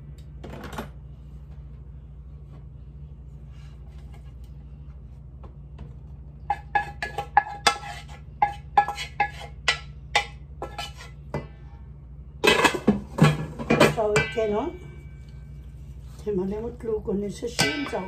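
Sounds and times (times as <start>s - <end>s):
steady low hum: 0.0s - 18.0s
pan clanking against metal bowl: 6.4s - 11.5s, 12.4s - 15.2s, 17.4s - 18.0s.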